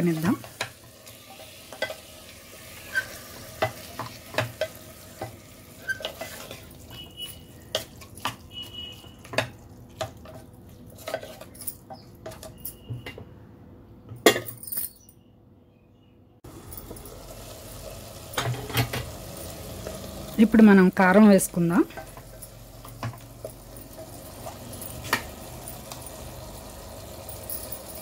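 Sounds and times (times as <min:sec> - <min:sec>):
faint meat sizzle: 0:00.0 - 0:07.7, 0:16.5 - 0:28.0
spatula scraping meat in pot: 0:02.6 - 0:05.1, 0:05.7 - 0:09.1.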